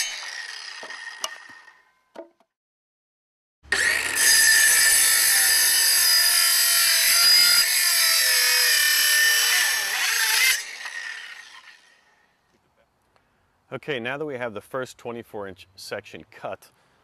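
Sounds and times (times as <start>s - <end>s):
circular saw cutting wood: 0.0s - 1.9s, 3.7s - 12.2s.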